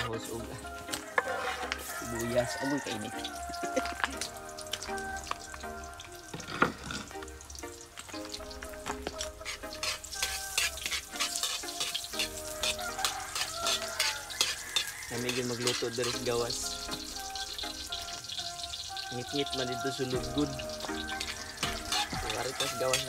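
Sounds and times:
garlic and onion sizzling: 0:00.0 - 0:23.0
metal ladle stirring: 0:00.9 - 0:03.2, 0:08.7 - 0:23.0.

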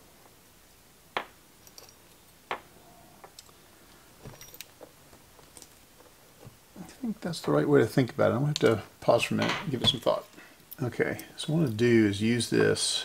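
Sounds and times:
small metal parts clicking: 0:01.6 - 0:02.2.

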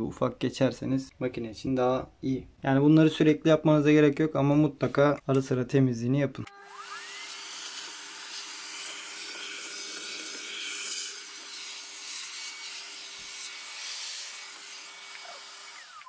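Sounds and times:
vacuum cleaner sucking air: 0:06.7 - 0:16.0.

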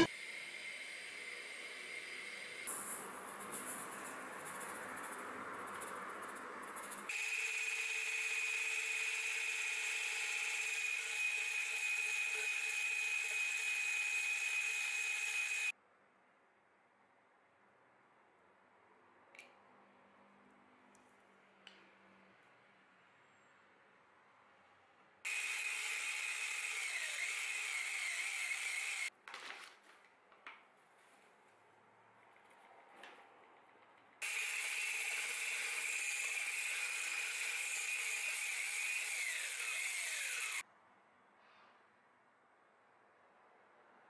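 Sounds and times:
hand blender motor whining: 0:00.0 - 0:00.7, 0:07.1 - 0:15.7, 0:25.3 - 0:29.1, 0:34.2 - 0:40.6.

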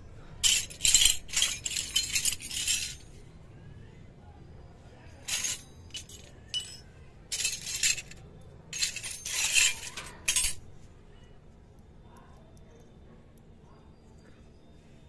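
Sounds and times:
metal toy utensils clinking: 0:00.4 - 0:03.1, 0:05.2 - 0:10.6.

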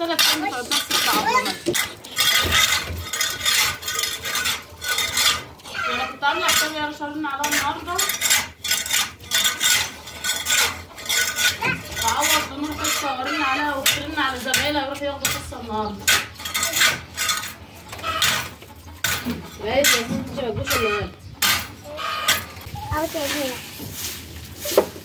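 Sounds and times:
metal hoe scraping dirt floor: 0:00.0 - 0:25.0
birds calling: 0:11.6 - 0:23.6.

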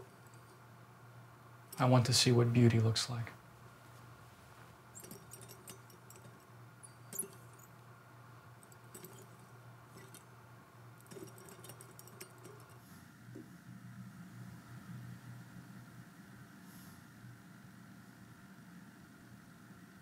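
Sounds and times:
metal gyroscope rings clicking: 0:00.0 - 0:00.7, 0:04.9 - 0:07.8, 0:08.6 - 0:10.4, 0:11.0 - 0:12.9.

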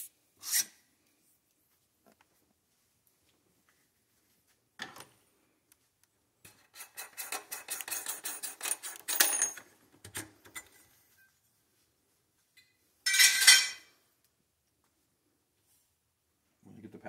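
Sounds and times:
metal tools clicking and clattering: 0:06.5 - 0:10.8, 0:13.1 - 0:13.9.

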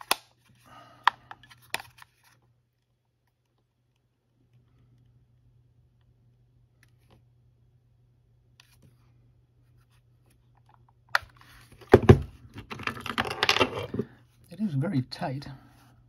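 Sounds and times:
steady low hum: 0:00.2 - 0:12.7.

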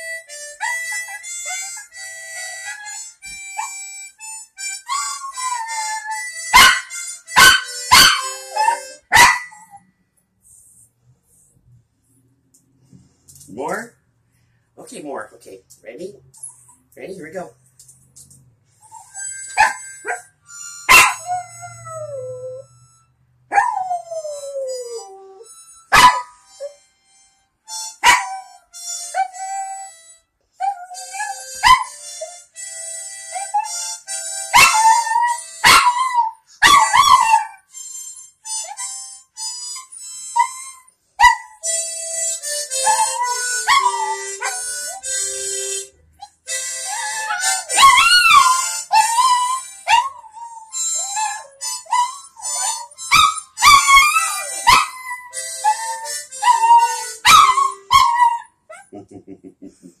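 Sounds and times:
harmonica playing: 0:00.0 - 0:12.3, 0:14.8 - 1:00.0
dog barking: 0:06.6 - 0:09.6, 0:20.9 - 0:21.3, 0:25.9 - 0:26.3, 0:28.0 - 0:28.3, 0:34.6 - 0:34.8, 0:35.6 - 0:36.0, 0:36.6 - 0:37.5, 0:57.2 - 0:58.2.

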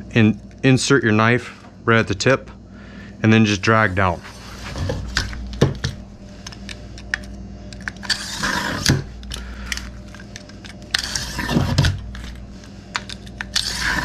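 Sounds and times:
knife blade scraping metal groove: 0:07.9 - 0:09.0, 0:10.9 - 0:12.3, 0:13.0 - 0:14.0.

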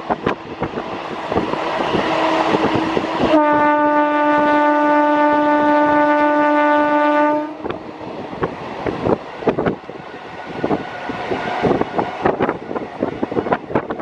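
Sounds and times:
train wheels rattling and clicking: 0:00.0 - 0:03.3, 0:07.6 - 0:14.0
wind on microphone: 0:00.0 - 0:06.6, 0:07.3 - 0:14.0
electric train horn blast: 0:03.2 - 0:07.8.

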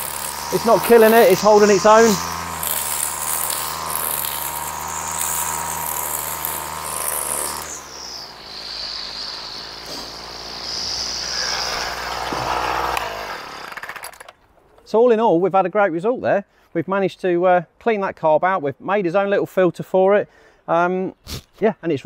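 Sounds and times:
strimmer engine cutting grass: 0:00.0 - 0:14.3.

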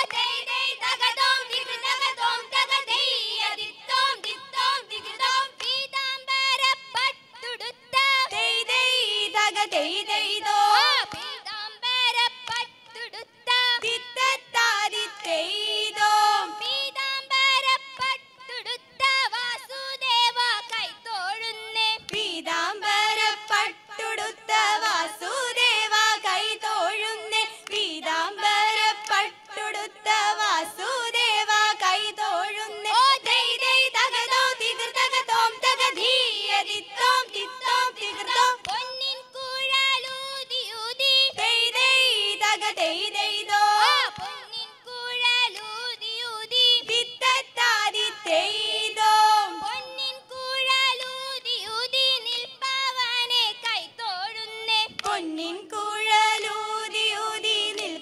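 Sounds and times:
hand claps: 0:00.0 - 0:00.3, 0:05.6 - 0:05.8, 0:11.0 - 0:11.4, 0:12.3 - 0:13.0, 0:13.8 - 0:14.0, 0:17.9 - 0:18.2, 0:22.0 - 0:22.3, 0:27.6 - 0:27.9, 0:29.0 - 0:29.2, 0:35.8 - 0:36.2, 0:38.3 - 0:39.0, 0:44.2 - 0:44.4, 0:45.5 - 0:45.8, 0:54.8 - 0:55.3, 0:57.7 - 0:58.0
women singing together: 0:00.0 - 0:58.0.

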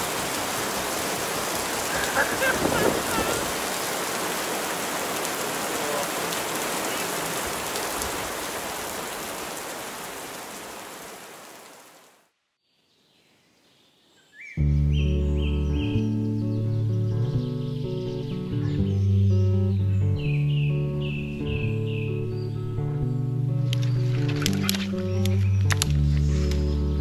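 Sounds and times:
heavy rain falling: 0:00.0 - 0:12.2, 0:23.6 - 0:27.0.

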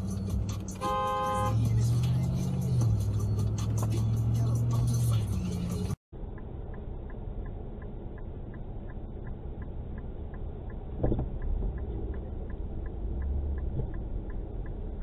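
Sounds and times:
car engine rumble: 0:00.0 - 0:15.0
turn signal ticking: 0:00.0 - 0:15.0.

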